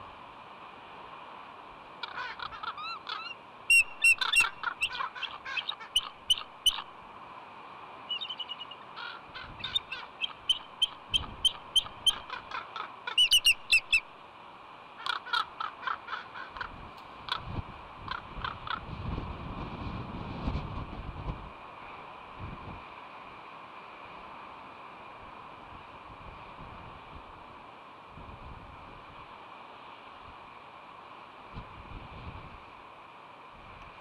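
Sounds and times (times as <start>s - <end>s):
eagle chattering piping calls: 2.0s - 6.9s, 8.1s - 14.0s, 15.0s - 16.7s.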